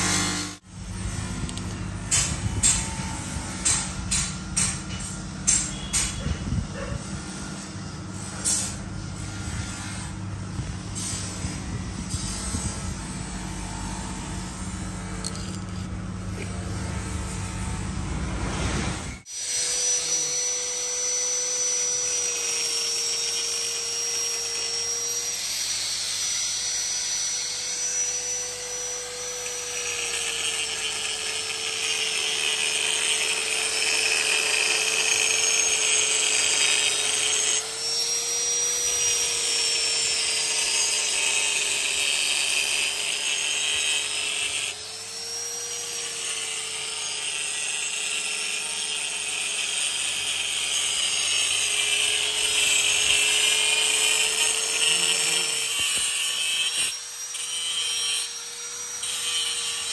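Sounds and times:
electric grinder grinding steel: 0.0s - 59.9s.

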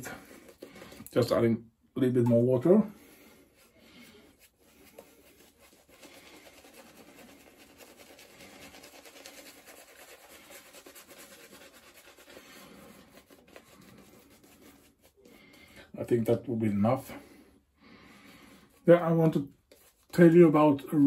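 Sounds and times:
shaving brush scratching on stubble: 3.6s - 15.4s.

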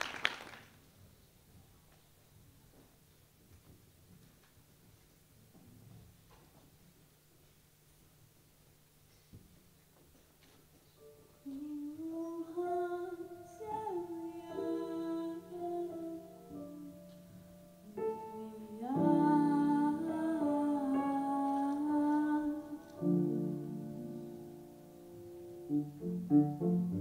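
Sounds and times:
piano chords: 11.0s - 27.0s
girl singing into a microphone: 11.4s - 17.1s, 17.9s - 23.1s.

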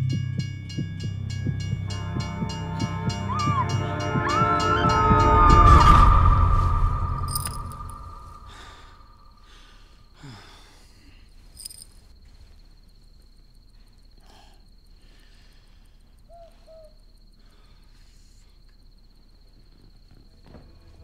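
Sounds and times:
music: 0.0s - 9.2s
cricket trilling: 0.1s - 21.0s
owl hooting: 16.3s - 17.0s.

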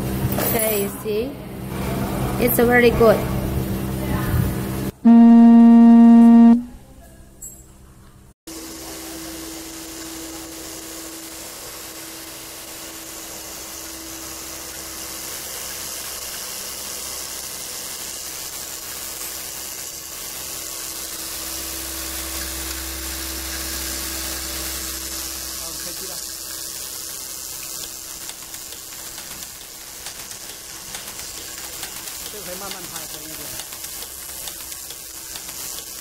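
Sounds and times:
loud electronic tone: 5.0s - 6.7s
machine hum and hiss: 8.5s - 36.0s.

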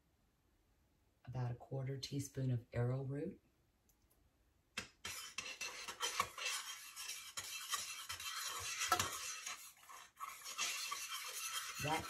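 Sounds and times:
metal spoon scraping saucepan: 5.0s - 12.0s.

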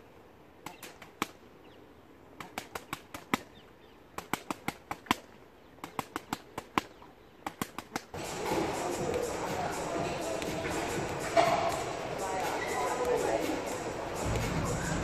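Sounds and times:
punches slapping focus mitts: 2.4s - 3.6s, 4.2s - 8.2s.

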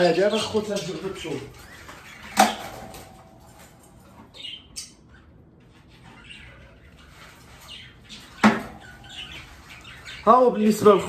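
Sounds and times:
birds chirping: 0.0s - 11.0s
wire bird cage clanking: 2.3s - 4.0s.

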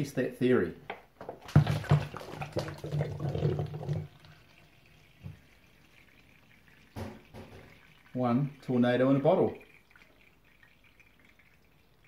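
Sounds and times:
water sloshing in plastic bottles: 1.2s - 8.8s.

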